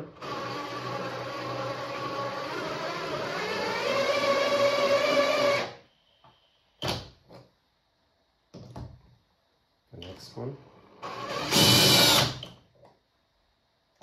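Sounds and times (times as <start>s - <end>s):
cordless drill whining: 0.2s - 5.8s, 11.0s - 12.5s.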